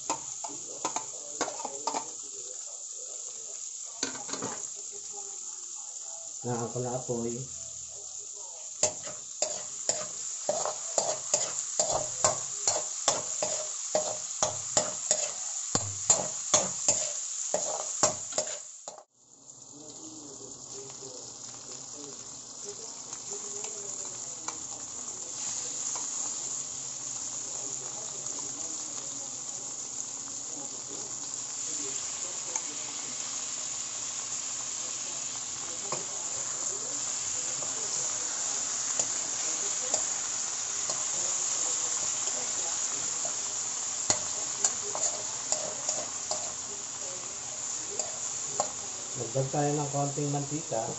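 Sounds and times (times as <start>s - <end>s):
chicken sizzling in oil: 0.0s - 50.9s
spatula scraping metal wok: 8.8s - 19.1s, 44.0s - 46.7s.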